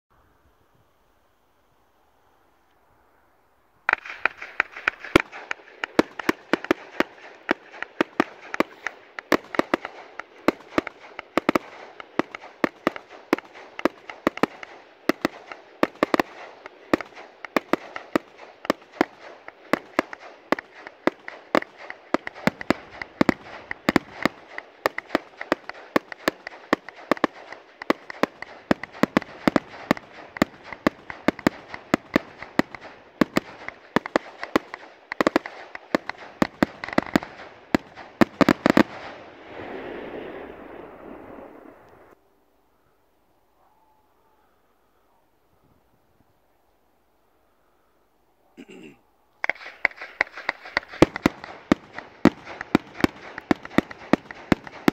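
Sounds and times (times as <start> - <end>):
firework hiss and crackle: 3.8 - 42.2, 49.4 - 54.9
sharp firework bangs: 3.9 - 41.8, 49.4 - 54.9
firework cake barrage: 3.9 - 42.2, 48.6 - 54.9.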